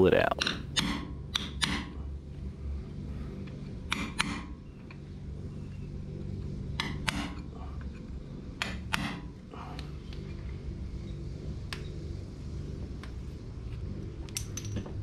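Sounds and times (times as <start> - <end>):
hammer striking metal punch: 0.4 - 1.9, 3.9 - 4.5.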